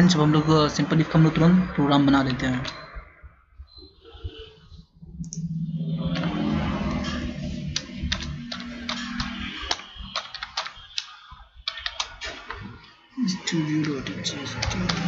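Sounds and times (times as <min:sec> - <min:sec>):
keyboard keys clicking: 0:06.2 - 0:12.4.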